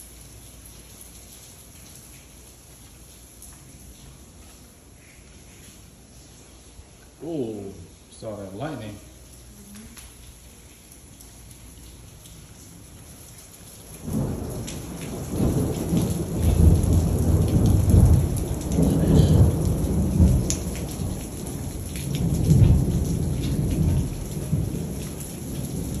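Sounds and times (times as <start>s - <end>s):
steady rain: 0.0s - 26.0s
thunder rumbling: 13.9s - 26.0s.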